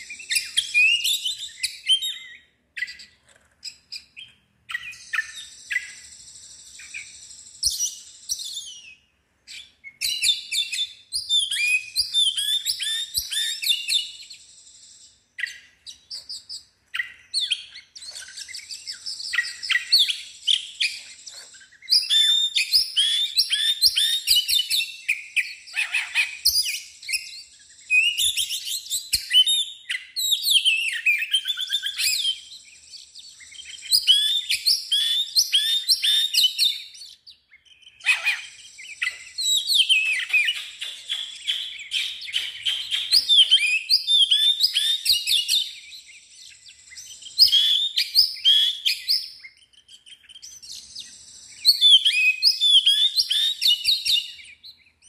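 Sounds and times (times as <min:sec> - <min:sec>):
bird singing whistled phrases: 0:00.0 - 0:03.1, 0:03.7 - 0:55.0.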